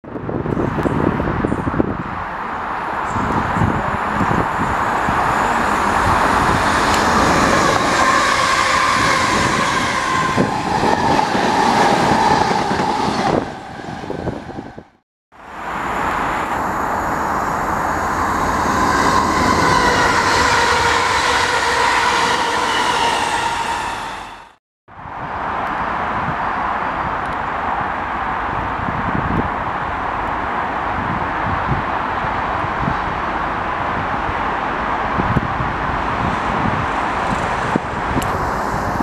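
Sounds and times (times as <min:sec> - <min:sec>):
train wheels rumbling: 0:02.8 - 0:15.0, 0:15.6 - 0:24.6
train motor whine: 0:15.7 - 0:24.5.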